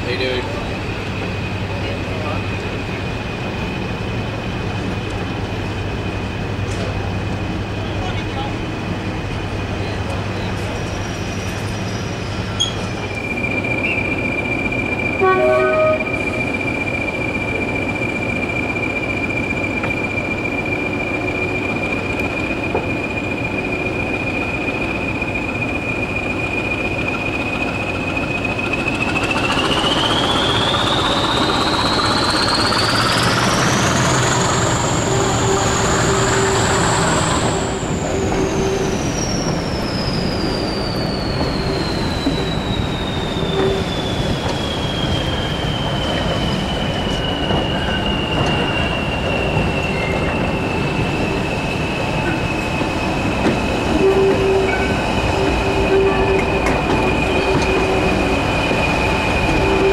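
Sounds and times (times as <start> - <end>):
diesel locomotive engine: 0.0 - 59.9
locomotive horn toot: 15.2 - 16.4, 35.0 - 36.8, 53.9 - 58.3, 59.5 - 59.9
turbocharger whistle: 53.9 - 59.9.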